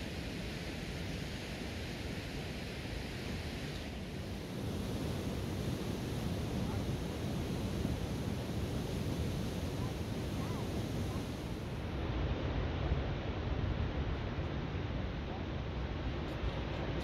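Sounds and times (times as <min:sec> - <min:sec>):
wind buffeting microphone: 0:04.1 - 0:11.8.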